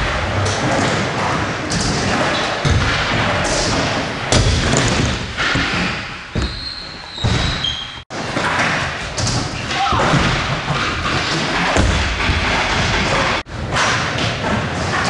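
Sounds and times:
scooter landing thuds and clatters: 0.0 - 15.0.

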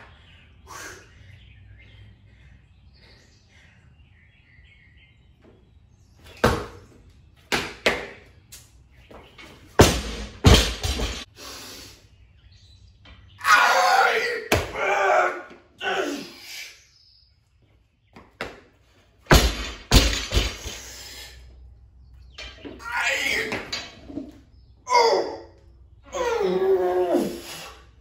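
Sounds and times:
barbell thuds and clanks: 9.8 - 11.3, 19.3 - 20.8.

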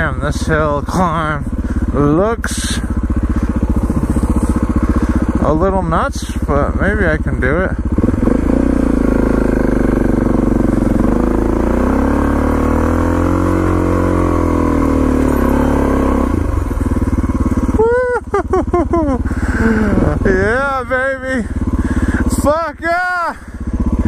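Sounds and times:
motorcycle engine under load: 0.0 - 24.0
rider shouting: 17.6 - 23.6.

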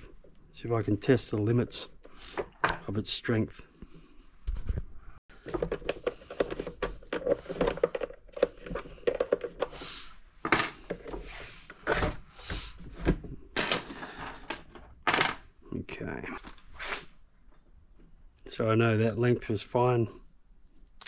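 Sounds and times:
wires and connectors rustling: 4.4 - 9.8
tools clinking on wooden bench: 10.5 - 11.1, 13.5 - 15.8.

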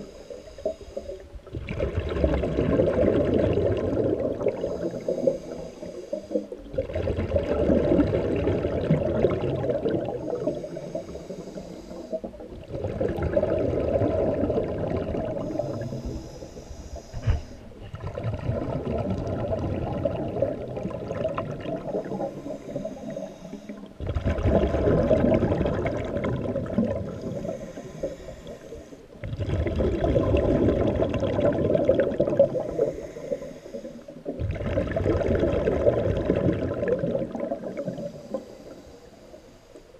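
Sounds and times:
regulator hiss on inhale: 0.0 - 1.4, 4.3 - 6.7, 10.1 - 12.5, 15.2 - 17.8, 21.7 - 24.0, 26.7 - 29.2, 32.2 - 34.4, 37.2 - 39.9
bubbling of exhaled air: 0.0 - 39.5.

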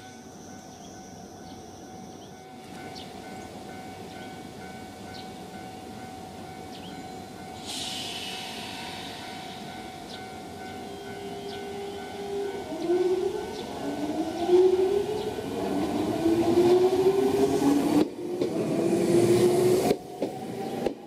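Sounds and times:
electric train humming and whining: 0.0 - 21.0
compressed air hiss: 7.6 - 10.2.

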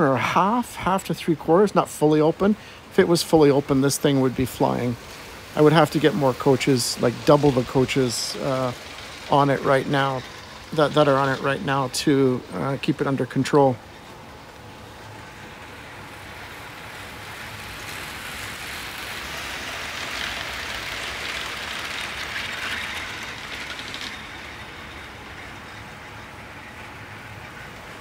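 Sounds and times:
model steam train running: 0.0 - 28.0.

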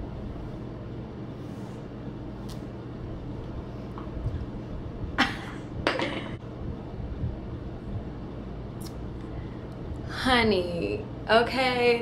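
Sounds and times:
faint hum: 0.0 - 12.0
low rumble: 6.4 - 10.1.

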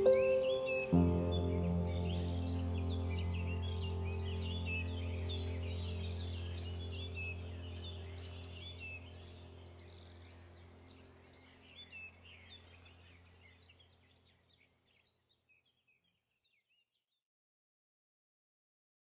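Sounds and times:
low steady drone: 0.0 - 13.6
birds chirping: 0.0 - 16.8.

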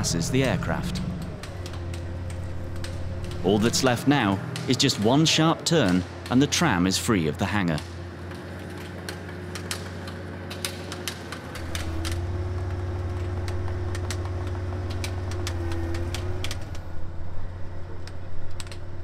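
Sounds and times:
forklift engine under load: 0.0 - 19.0
irregular sharp clicks: 0.8 - 3.9.

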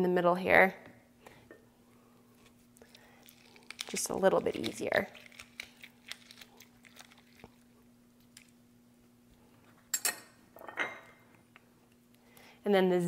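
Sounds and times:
faint steady hum: 0.0 - 13.0
soft ticks and squishes: 2.3 - 8.6
lime being squeezed: 2.9 - 7.7.

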